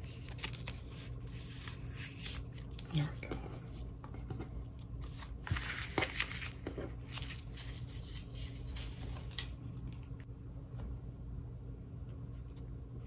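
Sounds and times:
plastic packaging tearing: 0:00.0 - 0:03.0.

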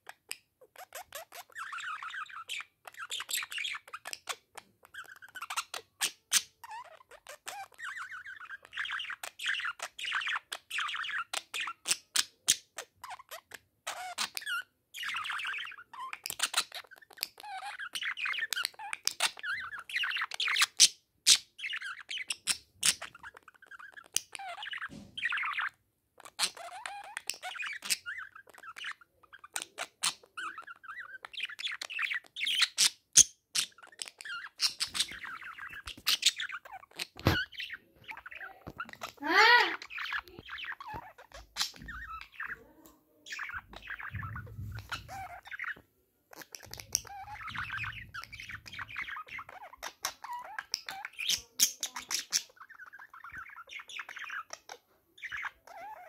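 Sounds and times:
budgerigars chattering: 0:33.6 - 0:42.6, 0:43.3 - 0:45.8, 0:46.4 - 0:56.0.

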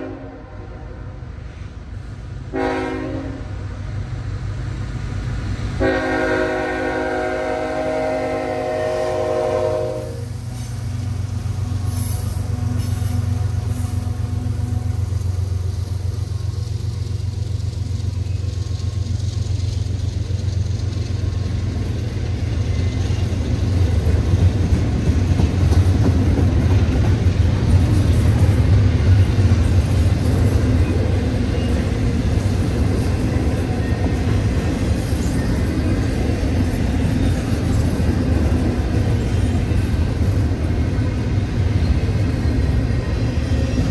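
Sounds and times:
train horn: 0:00.0 - 0:01.1, 0:02.5 - 0:03.6, 0:05.8 - 0:10.4
train wheels rumbling on rails: 0:00.0 - 0:43.9.

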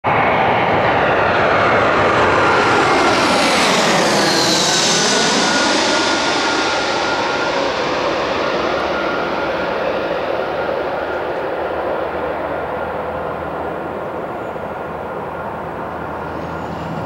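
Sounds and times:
jet engines whining: 0:00.1 - 0:17.0.

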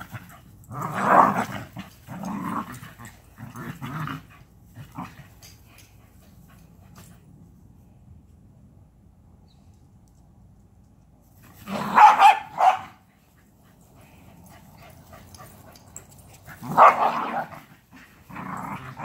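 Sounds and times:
small dogs barking: 0:11.6 - 0:13.0, 0:16.4 - 0:17.7.

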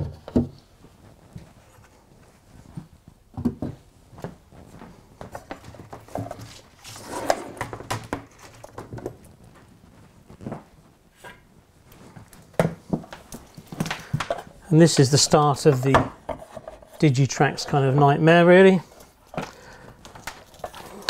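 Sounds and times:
cables rustling: 0:00.6 - 0:15.9
footsteps on floor: 0:00.8 - 0:06.6.

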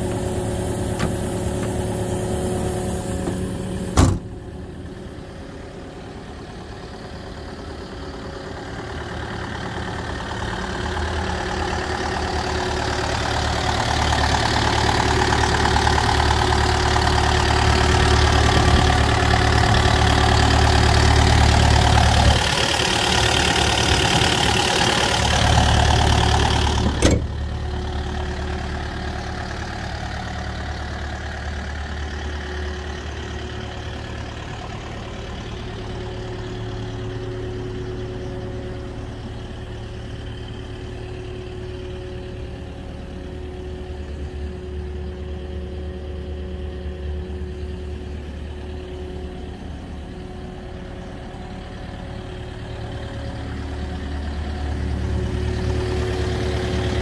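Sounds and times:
diesel engine idling: 0:00.0 - 0:57.0.

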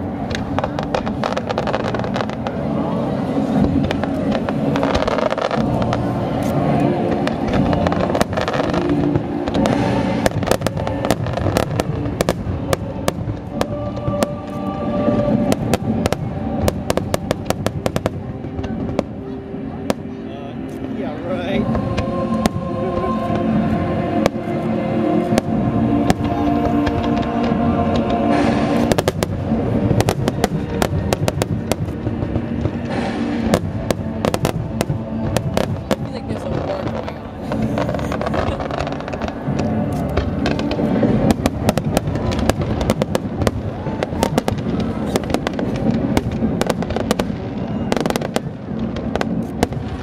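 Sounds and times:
continuous rumble: 0:00.0 - 0:50.0
fireworks bursting and crackling: 0:00.0 - 0:50.0
music with long held notes: 0:00.0 - 0:50.0.

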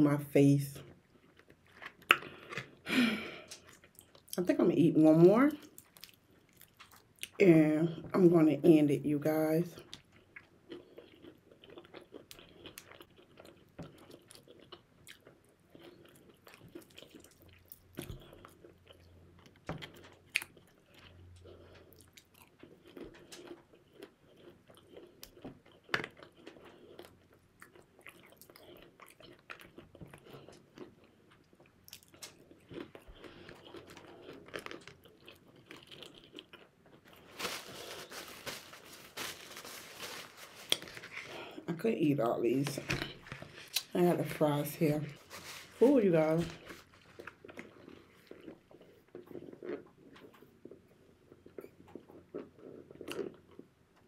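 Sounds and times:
person chewing crispy chicken: 0:01.0 - 0:04.4, 0:05.7 - 0:07.4, 0:09.8 - 0:41.6, 0:45.2 - 0:53.7
paper napkin rustling: 0:37.2 - 0:41.3, 0:45.1 - 0:47.3.

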